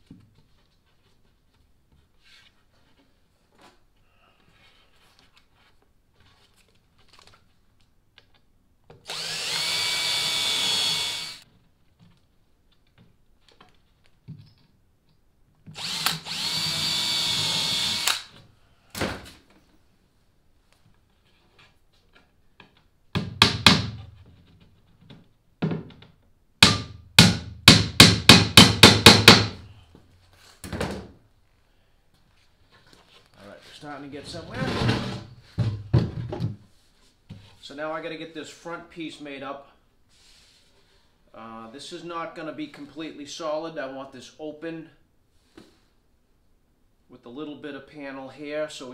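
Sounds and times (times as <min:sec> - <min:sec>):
cordless drill drilling into plywood: 0:09.0 - 0:11.4, 0:15.8 - 0:18.3
hammer driving nails into wood: 0:23.1 - 0:24.0, 0:26.6 - 0:29.6.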